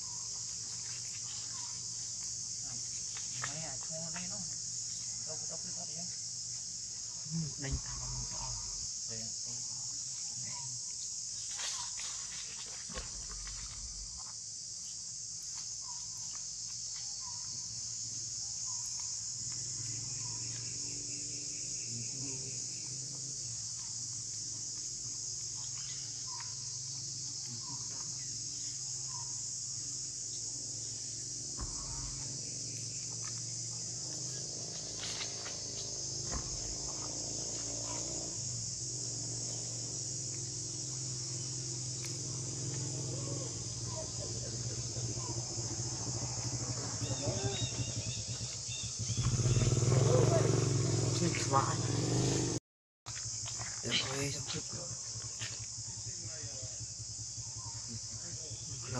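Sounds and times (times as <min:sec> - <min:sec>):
high-pitched insect chorus: 0:00.0 - 0:58.9
faint chirps: 0:25.3 - 0:37.1, 0:39.5 - 0:50.3.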